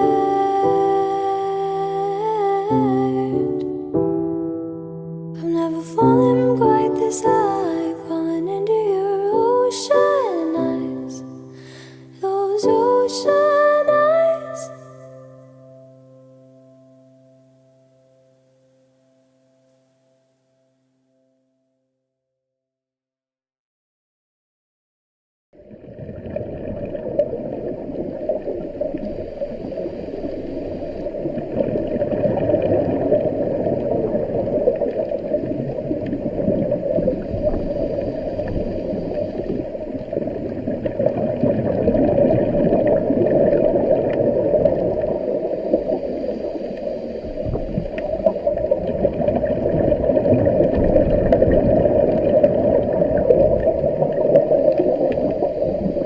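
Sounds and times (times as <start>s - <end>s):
muffled underwater rushing rumble: 25.6s - 56.0s.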